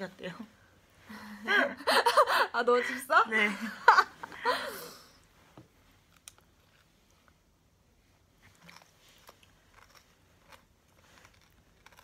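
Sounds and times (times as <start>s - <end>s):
quiet chewing: 8.4s - 12.0s.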